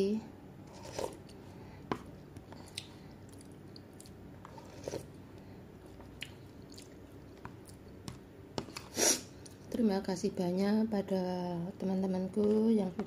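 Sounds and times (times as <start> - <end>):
low room hum: 0.0 - 13.0
person chewing: 2.4 - 9.6.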